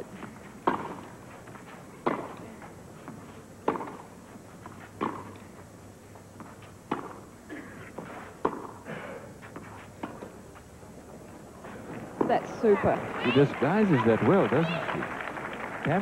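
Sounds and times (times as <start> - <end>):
faint crowd hum: 0.0 - 16.0
tennis ball hit by rackets: 0.2 - 1.1, 2.0 - 2.4, 3.1 - 5.4, 6.4 - 7.3, 7.9 - 8.8, 9.6 - 10.4.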